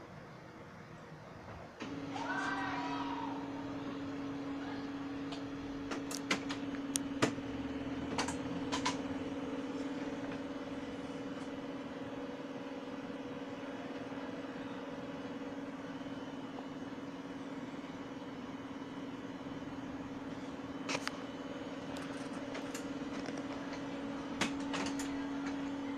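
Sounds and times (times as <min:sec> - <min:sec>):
printer motor hum: 0:00.0 - 0:25.9
printer sharp clicks: 0:08.1 - 0:09.2.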